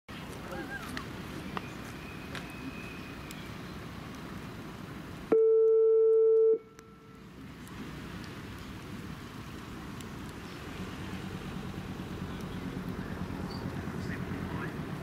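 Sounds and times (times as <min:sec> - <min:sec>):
outdoor background noise: 0:00.1 - 0:15.0
electronic buzzer tone: 0:05.3 - 0:06.6.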